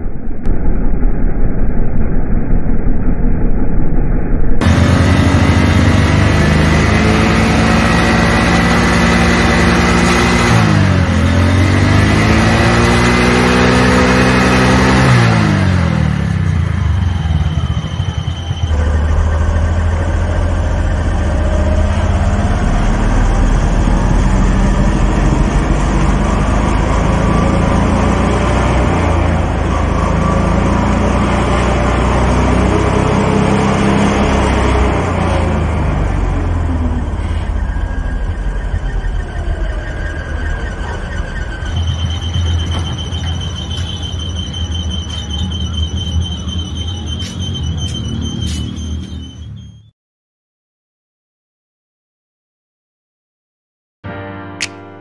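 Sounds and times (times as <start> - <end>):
motorcycle engine running: 0.2 - 32.4.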